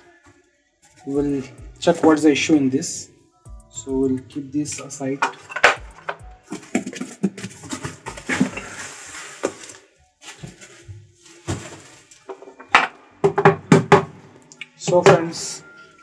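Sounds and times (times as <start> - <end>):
foam packing rustling: 6.5 - 12.5.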